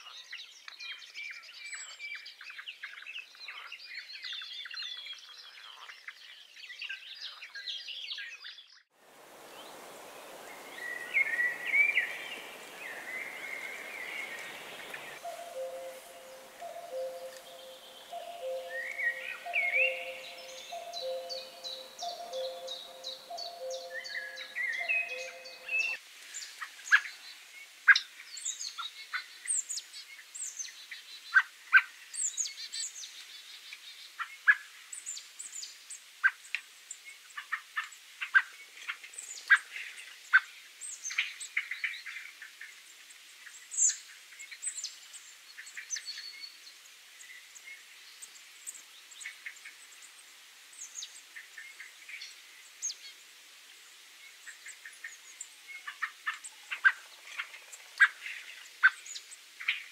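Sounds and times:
blackbird calling: 10.3 - 26.0.

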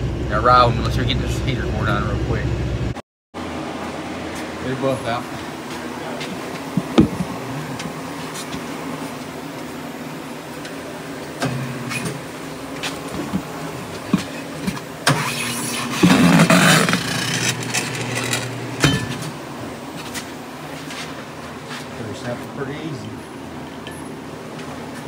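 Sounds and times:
rubber scraping and grinding: 15.1 - 18.6.

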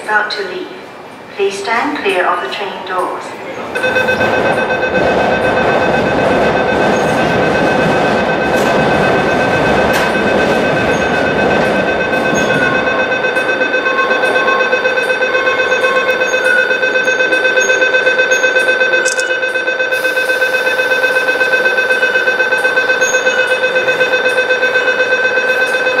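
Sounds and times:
train rumble: 0.0 - 18.4
pulsing electronic alarm tone: 3.7 - 26.0.

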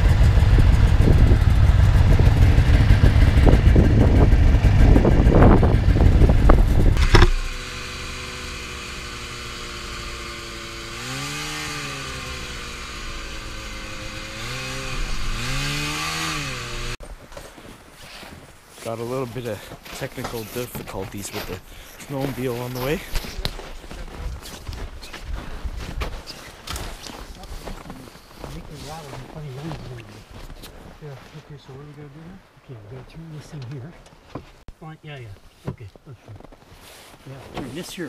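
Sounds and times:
loud low rumble with clatter: 0.0 - 7.7
snowmobile engine running: 0.0 - 17.0.

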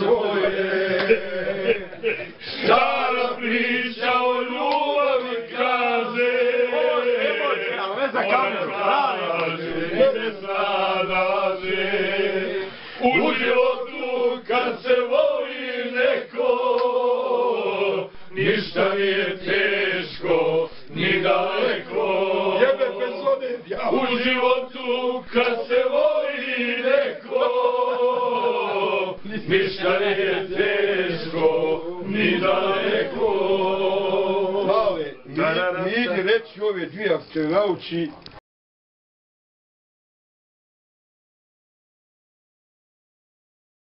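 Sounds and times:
men singing without instruments: 0.0 - 35.8.

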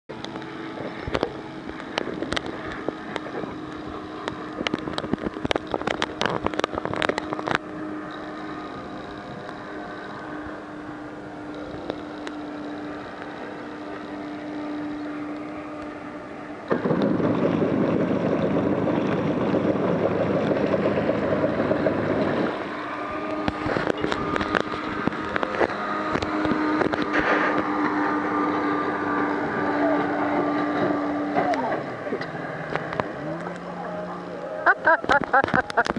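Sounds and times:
high engine whine: 0.1 - 35.9
motorboat engine idling: 0.1 - 35.9
wind gusting on microphone: 14.8 - 33.4.

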